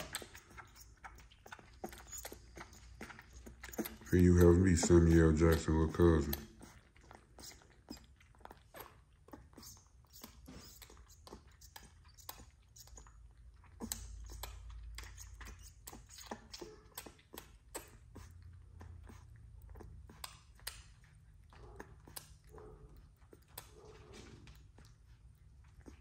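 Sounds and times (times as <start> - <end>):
puppy suckling wet clicks: 0.0 - 26.0.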